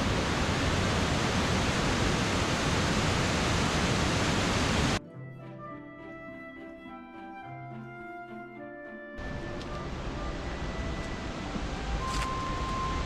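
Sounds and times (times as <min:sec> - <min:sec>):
waterfall rushing: 0:00.0 - 0:05.0, 0:09.2 - 0:13.0
soft background music: 0:05.0 - 0:13.0.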